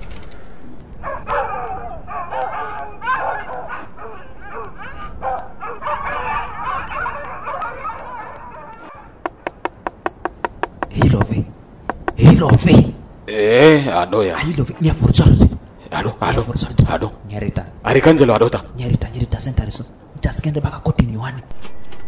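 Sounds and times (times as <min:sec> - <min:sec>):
crickets trilling: 0:00.0 - 0:22.0
indistinct voices: 0:08.0 - 0:19.9.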